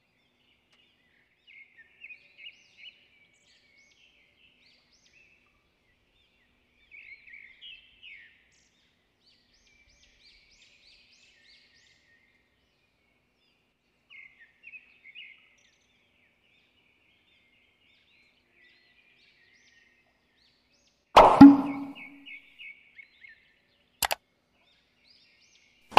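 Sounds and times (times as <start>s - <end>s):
sound effect hits: 21.2s - 22.2s.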